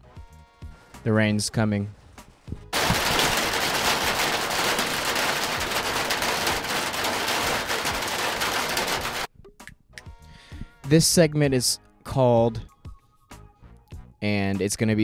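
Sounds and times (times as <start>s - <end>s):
rain on a metal roof: 2.8s - 9.3s.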